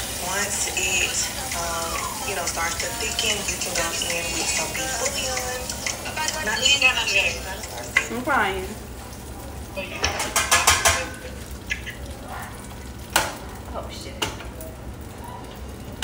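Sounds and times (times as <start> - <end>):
metal pots and tongs clattering: 9.9 - 11.3.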